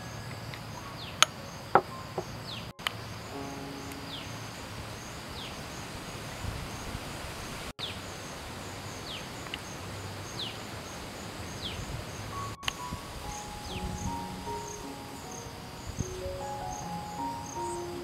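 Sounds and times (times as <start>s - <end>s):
insects trilling: 8.3s - 18.0s.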